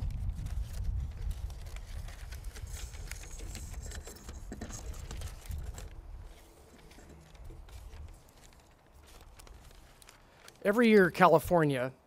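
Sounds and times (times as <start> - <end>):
low wind rumble: 0.0 - 6.4
light rustling: 0.4 - 10.6.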